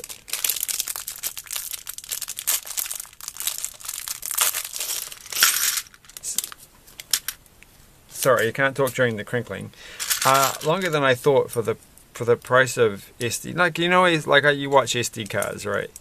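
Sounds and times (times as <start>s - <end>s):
plastic bag crinkling: 0.0s - 7.4s, 10.0s - 11.0s.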